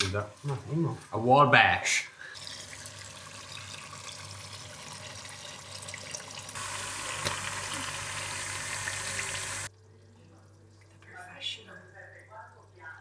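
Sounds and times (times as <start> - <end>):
sauce sizzling in a pot: 2.3 - 11.0.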